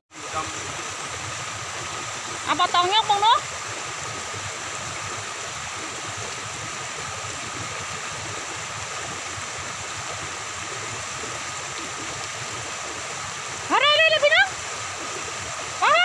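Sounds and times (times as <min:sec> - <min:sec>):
floodwater rushing: 0:00.1 - 0:16.0
rain falling on water: 0:00.2 - 0:16.0.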